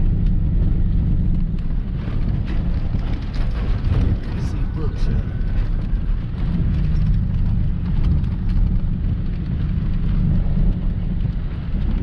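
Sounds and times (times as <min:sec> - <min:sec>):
engine and tyres rumbling: 0:00.0 - 0:12.0
small rattles and knocks: 0:00.2 - 0:12.0.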